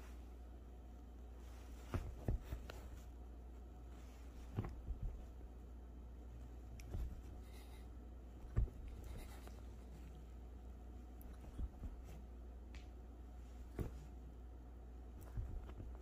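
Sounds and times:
low steady hum: 0.0s - 16.0s
rustling on fabric cushions: 0.0s - 16.0s
dull thumps: 1.8s - 3.0s, 4.3s - 5.4s, 8.3s - 9.5s, 13.6s - 14.2s, 15.2s - 16.0s.

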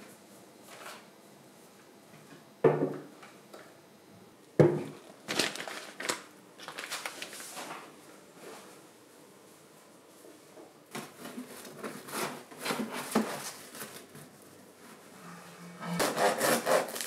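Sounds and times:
plastic packets crinkling: 5.2s - 7.8s.

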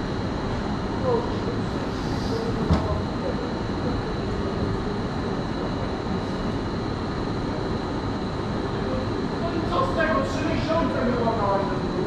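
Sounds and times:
faint high whine: 0.0s - 12.0s
railway station rumble and hiss: 0.0s - 12.0s.

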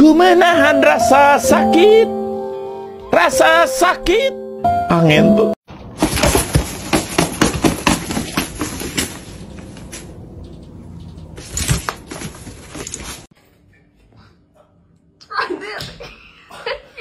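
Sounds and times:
crinkling nylon lining rustle: 11.4s - 13.3s.

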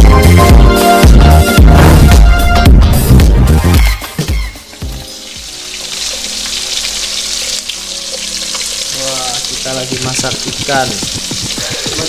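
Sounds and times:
fish sizzling in a wok: 4.4s - 12.0s.

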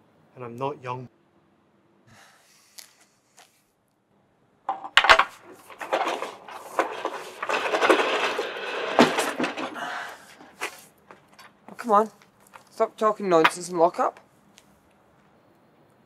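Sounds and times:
metal clattering and rattling: 4.7s - 11.6s.

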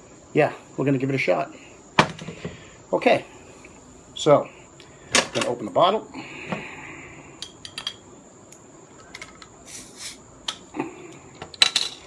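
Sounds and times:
bottle hiss: 9.6s - 10.2s.

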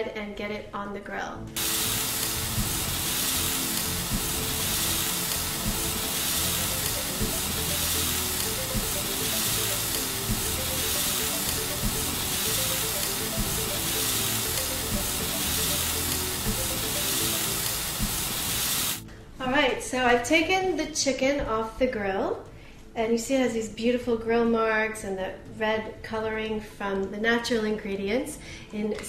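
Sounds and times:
background music of held notes: 1.5s - 19.4s
chicken sizzling on a grill: 1.6s - 19.0s.

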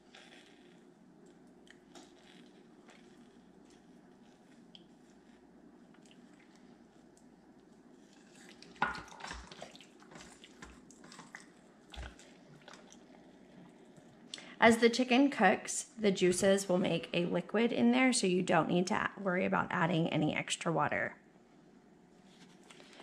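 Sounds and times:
wet squishing and scraping: 0.0s - 14.3s.

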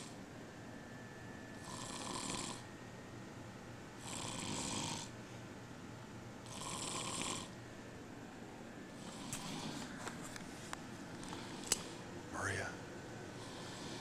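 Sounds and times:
air conditioning hum: 0.0s - 14.0s
man snoring: 1.6s - 2.6s, 4.0s - 5.1s, 6.4s - 7.6s, 9.0s - 9.9s, 13.4s - 14.0s.

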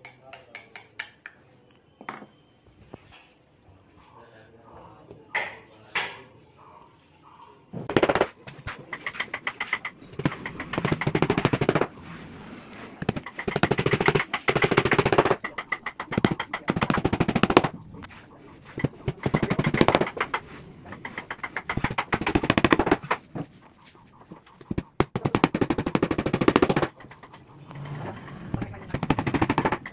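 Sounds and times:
small hammer tapping nails: 0.0s - 1.4s, 8.9s - 11.9s, 13.0s - 17.7s, 18.8s - 23.2s, 28.1s - 29.9s.

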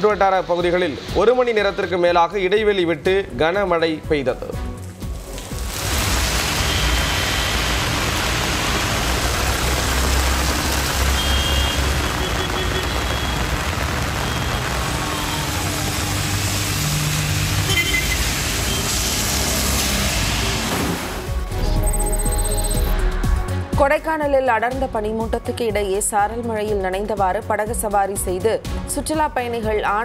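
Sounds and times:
tyres on wet road: 4.9s - 21.4s
rain hissing: 5.0s - 21.5s
passing car engines rumbling: 13.5s - 21.3s
short high-pitched tones: 21.6s - 23.0s.

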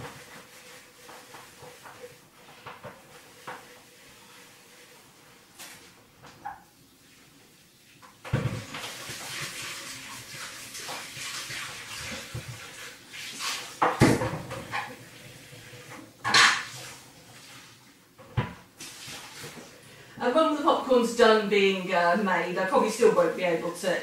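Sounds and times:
dishware knocking and clattering: 16.2s - 16.8s.

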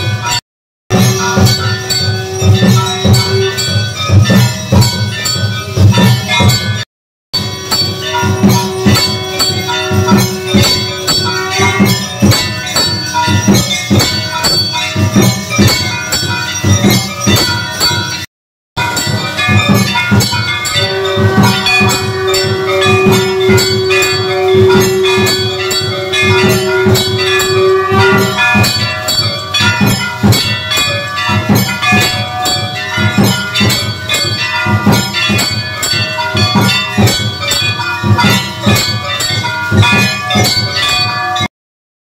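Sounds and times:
temple bells ringing fast: 0.0s - 6.8s, 7.4s - 41.5s
long held note: 20.8s - 29.0s.

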